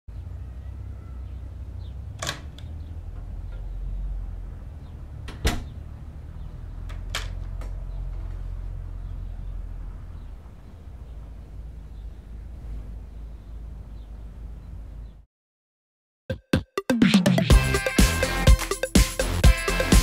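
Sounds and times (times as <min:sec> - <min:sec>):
door clicks and knocks: 0:02.2 - 0:03.7, 0:05.2 - 0:05.8, 0:06.8 - 0:07.9
low rumble: 0:07.9 - 0:15.2.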